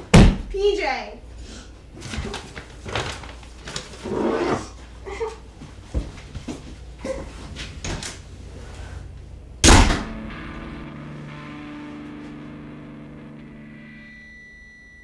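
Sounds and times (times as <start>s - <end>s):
loud bang: 9.6s - 13.6s
low musical drone: 9.9s - 14.3s.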